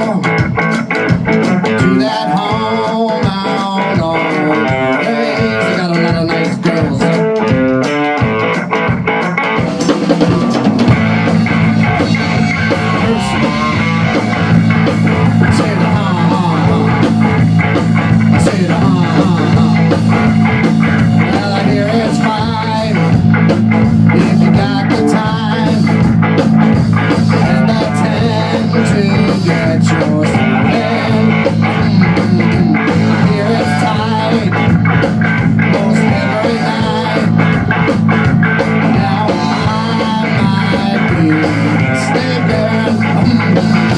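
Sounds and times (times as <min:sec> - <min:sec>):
man singing into a microphone: 0:00.0 - 0:00.4, 0:01.6 - 0:07.4, 0:09.8 - 0:10.8, 0:12.0 - 0:14.2, 0:15.2 - 0:17.2, 0:18.3 - 0:20.1, 0:21.2 - 0:23.2, 0:24.0 - 0:26.1, 0:27.1 - 0:34.8, 0:35.5 - 0:37.6, 0:38.6 - 0:43.9
live rock band playing: 0:00.0 - 0:43.9.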